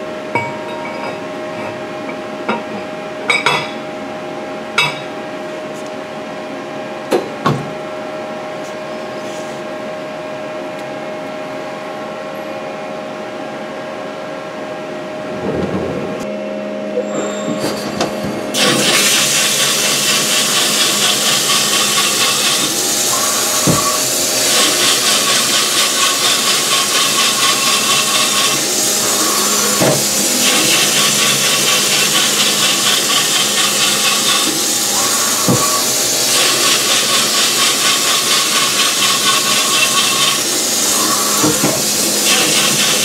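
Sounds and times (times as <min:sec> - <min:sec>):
lathe humming: 0:17.6 - 0:43.0
coolant spray hissing: 0:18.6 - 0:43.0.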